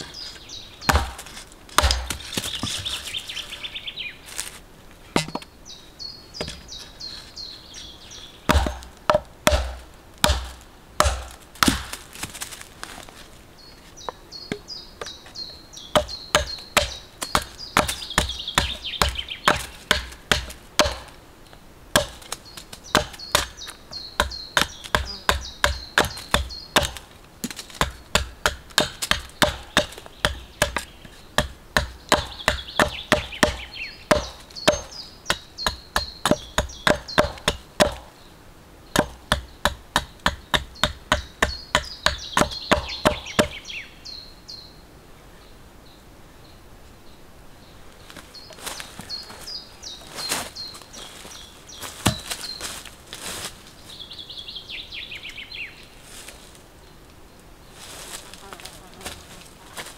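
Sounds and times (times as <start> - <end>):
hatchet chopping wood: 0.8 - 2.9, 8.5 - 12.3, 15.9 - 21.2, 21.9 - 38.1, 38.9 - 43.6, 52.0 - 52.4.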